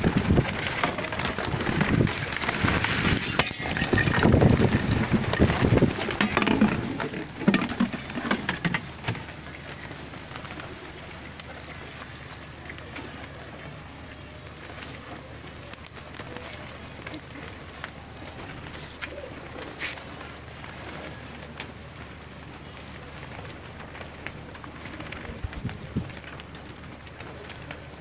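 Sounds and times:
pigeon wing flaps: 0.0 - 28.0
pigeons cooing: 0.0 - 28.0
pigeons pecking and shuffling: 0.0 - 28.0.

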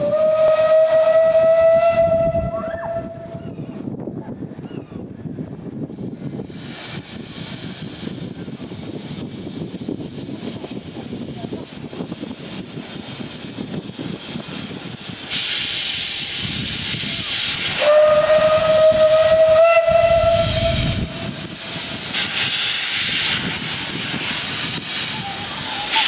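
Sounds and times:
steam whistle blast: 0.0 - 3.4, 17.4 - 22.0
steam locomotive hissing: 0.0 - 3.9, 5.5 - 26.0.

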